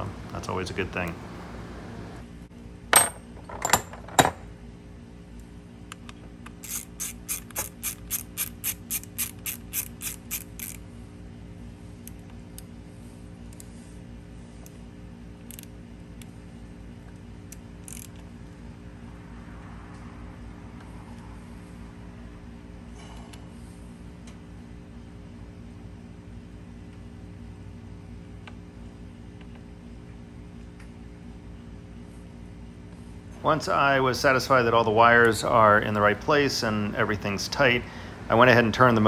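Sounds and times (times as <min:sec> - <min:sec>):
ratchet wrench clicking: 0:06.5 - 0:10.8, 0:15.4 - 0:15.7, 0:17.5 - 0:18.2.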